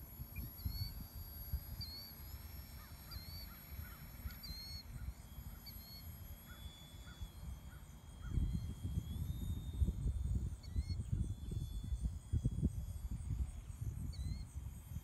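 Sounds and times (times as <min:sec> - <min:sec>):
model airplane motor whine: 0:00.0 - 0:15.0
faint bird calls: 0:01.8 - 0:08.6
wind rumbling on microphone: 0:08.2 - 0:15.0.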